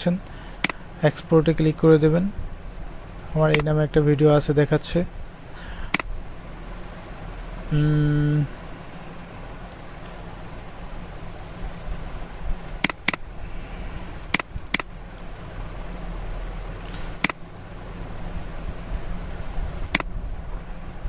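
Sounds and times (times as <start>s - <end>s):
steady low hum: 0.0s - 21.0s
computer mouse clicking: 12.6s - 13.2s, 14.2s - 14.9s, 17.2s - 17.4s, 19.8s - 20.1s.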